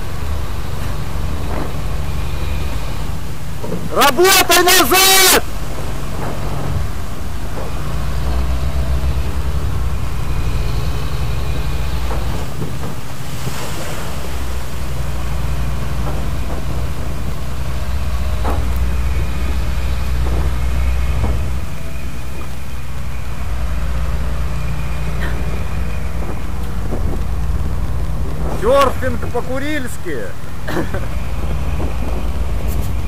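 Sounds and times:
boat engine droning: 0:00.0 - 0:33.0
water splashing along hull: 0:00.0 - 0:33.0
wind on microphone: 0:25.1 - 0:29.4.

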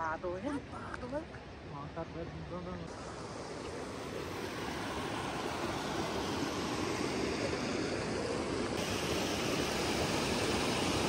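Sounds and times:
river rushing over rocks: 0:02.9 - 0:11.0.

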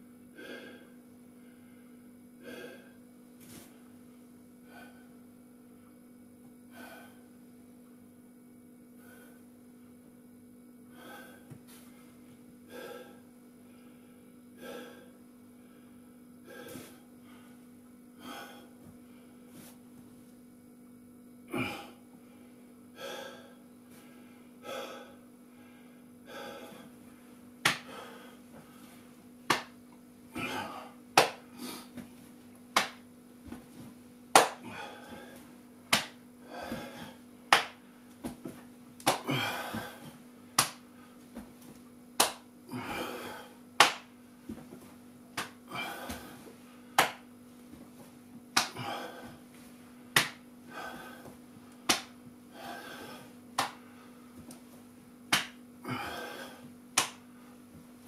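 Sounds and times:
person breathing heavily: 0:00.3 - 0:03.8, 0:04.6 - 0:05.2, 0:06.7 - 0:07.3, 0:09.0 - 0:09.5, 0:10.9 - 0:12.0, 0:12.7 - 0:19.8, 0:21.5 - 0:27.0, 0:27.7 - 0:29.7, 0:30.3 - 0:32.0, 0:34.4 - 0:38.0, 0:39.1 - 0:41.2, 0:42.7 - 0:44.0, 0:45.6 - 0:47.2, 0:48.6 - 0:49.6, 0:50.6 - 0:54.4, 0:55.8 - 0:57.6
sharp slaps and smacks: 0:27.6 - 0:27.9, 0:29.5 - 0:29.8, 0:31.2 - 0:32.1, 0:32.7 - 0:33.0, 0:34.3 - 0:34.6, 0:35.9 - 0:36.2, 0:37.5 - 0:39.3, 0:40.6 - 0:40.8, 0:42.2 - 0:42.5, 0:43.8 - 0:44.1, 0:45.3 - 0:46.3, 0:47.0 - 0:47.3, 0:48.6 - 0:48.8, 0:50.1 - 0:50.4, 0:51.8 - 0:52.2, 0:53.6 - 0:53.8, 0:55.3 - 0:55.6, 0:57.0 - 0:57.2.

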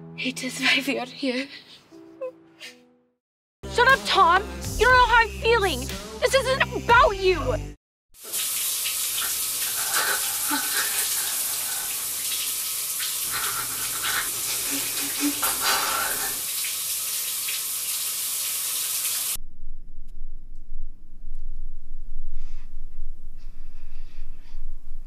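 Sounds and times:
shower water running: 0:08.2 - 0:19.4.

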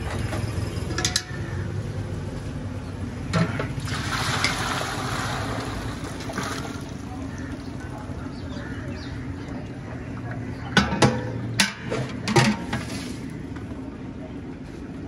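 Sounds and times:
low steady rumble: 0:00.0 - 0:15.0
gravy pouring and splashing: 0:03.7 - 0:07.1.

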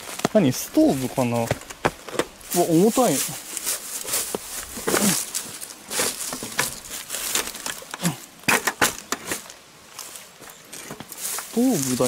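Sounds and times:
footsteps crunching through dry leaves: 0:00.0 - 0:12.0.

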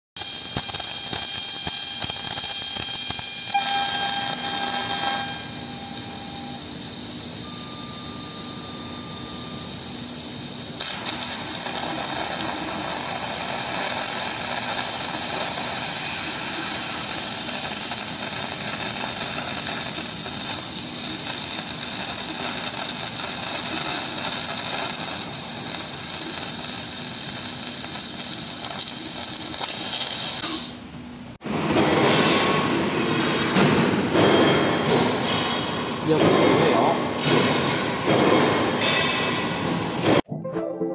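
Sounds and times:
laser cutter gas jet hissing: 0:00.2 - 0:30.9
thin high tones: 0:00.7 - 0:23.5.

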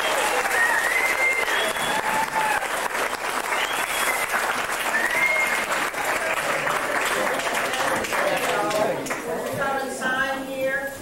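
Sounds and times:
high calls and whoops: 0:00.0 - 0:05.8
crowd applauding: 0:00.0 - 0:09.3.

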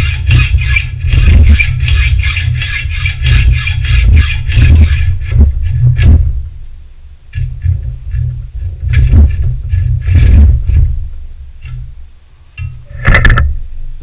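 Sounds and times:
hacksaw rasping on metal: 0:00.0 - 0:06.2
saw clattering: 0:00.0 - 0:06.2
low rumble: 0:00.0 - 0:12.1.

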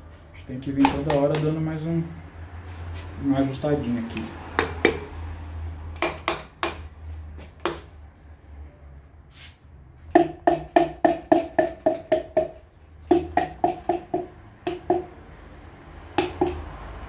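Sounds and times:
piston tapped into cylinder: 0:10.2 - 0:15.1, 0:16.2 - 0:16.6.

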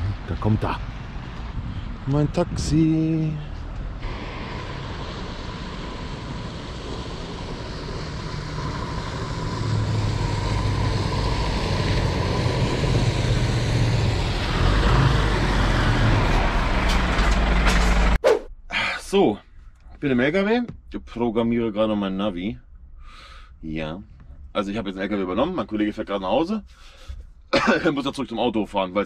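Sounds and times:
road noise: 0:00.0 - 0:18.5
truck diesel engine: 0:03.6 - 0:18.2.

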